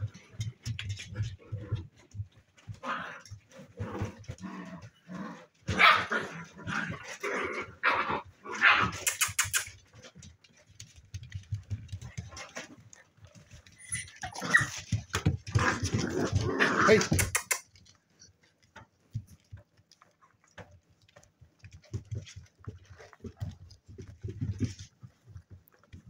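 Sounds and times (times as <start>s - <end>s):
sharp clicks: 9.0s - 9.8s, 17.1s - 17.7s
puppies yapping and barking: 13.2s - 16.4s.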